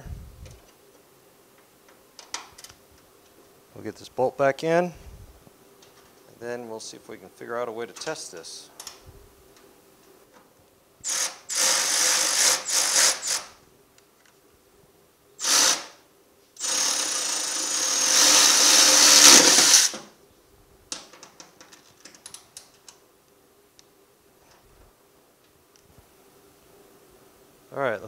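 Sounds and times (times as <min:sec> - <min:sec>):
cordless ratchet running: 0:16.6 - 0:19.9.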